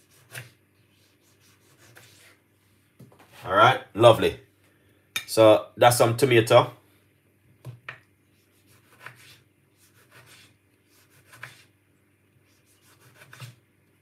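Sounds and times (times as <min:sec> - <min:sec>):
knocks and scrapes on cutting board: 0:08.7 - 0:10.5, 0:11.1 - 0:11.7, 0:12.8 - 0:13.6.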